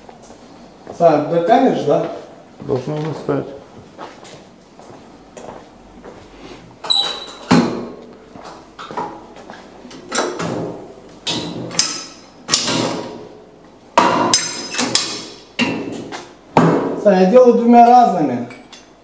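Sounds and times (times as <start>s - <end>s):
metal knocks of gym machine: 14.0s - 16.0s.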